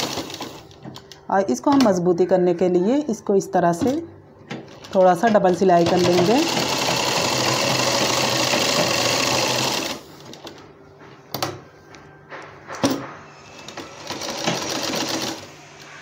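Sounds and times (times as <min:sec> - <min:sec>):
sewing machine running: 0:00.0 - 0:00.6, 0:04.7 - 0:10.5, 0:13.5 - 0:15.6.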